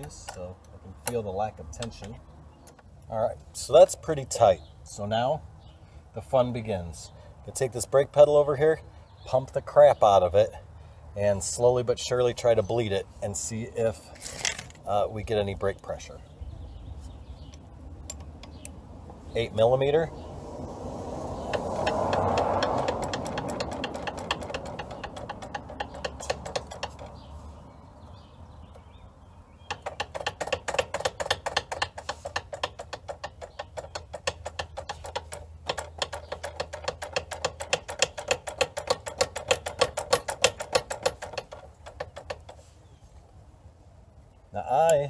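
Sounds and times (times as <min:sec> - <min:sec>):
ratchet wrench clicking: 0:21.4 - 0:27.2, 0:29.7 - 0:42.6.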